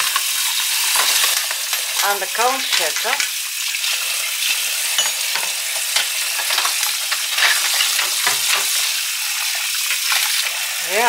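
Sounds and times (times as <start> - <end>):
dishes clinking and knocking: 0.9 - 3.4, 4.9 - 9.0.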